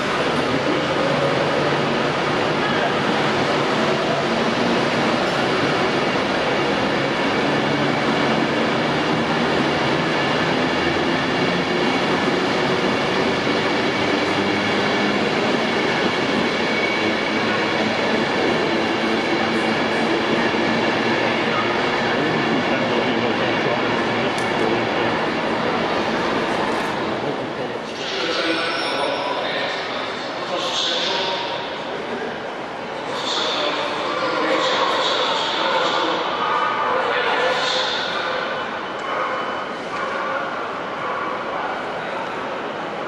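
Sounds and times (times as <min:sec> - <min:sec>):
train running noise: 0:00.0 - 0:43.0.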